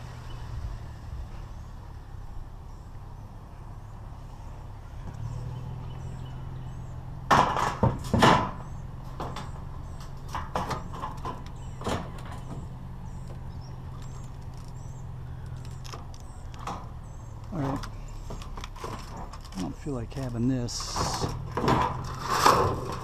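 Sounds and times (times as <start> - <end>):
scrap metal clanking on truck bed: 7.3 - 12.7, 17.6 - 23.0.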